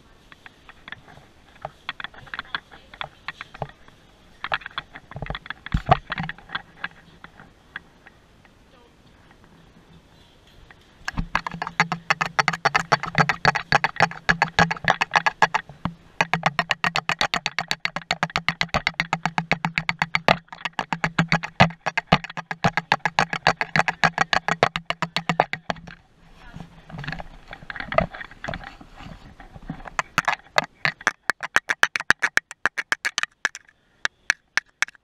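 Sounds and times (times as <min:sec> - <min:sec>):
low steady hum: 0:00.0 - 0:35.0
rapid even clicking: 0:10.7 - 0:26.0, 0:26.9 - 0:35.0.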